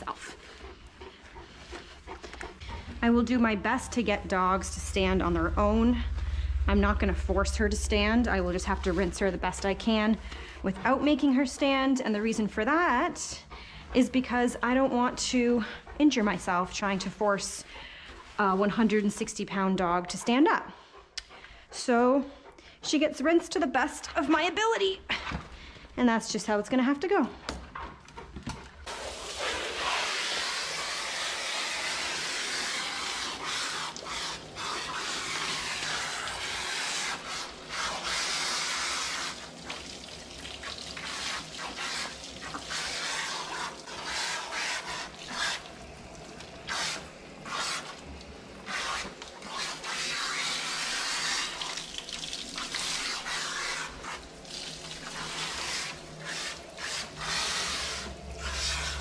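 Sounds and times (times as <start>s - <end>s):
hose nozzle spraying water: 28.9s - 59.0s.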